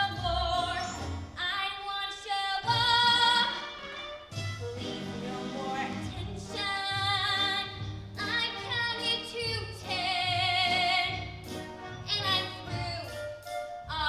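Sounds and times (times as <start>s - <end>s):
woman singing: 0.0s - 3.6s, 5.1s - 11.3s, 12.1s - 13.3s
instrumental accompaniment: 2.6s - 14.0s.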